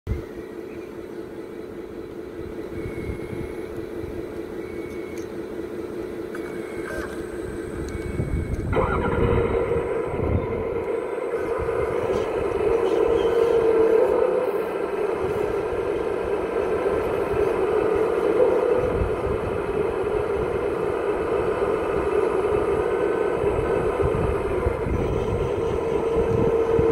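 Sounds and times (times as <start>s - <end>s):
hydraulic pump whining: 0.2s - 26.9s
faint short beeps: 4.6s - 5.4s, 6.4s - 11.4s.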